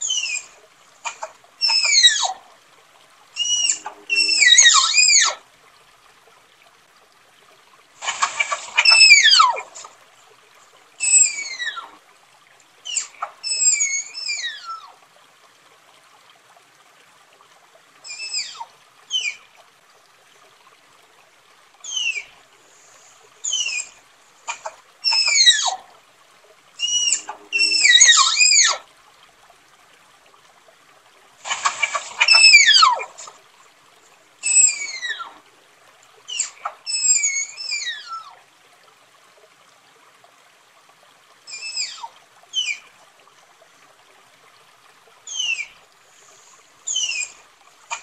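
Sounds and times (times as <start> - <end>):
tapir whistling squeals: 1.6 - 2.4, 3.4 - 5.4, 8.3 - 9.6, 11.0 - 11.9, 12.9 - 14.8, 23.4 - 24.0, 25.1 - 25.8, 26.8 - 28.8, 31.6 - 33.2, 34.4 - 35.3, 36.3 - 38.3, 41.5 - 42.8, 45.3 - 45.8, 46.9 - 48.0.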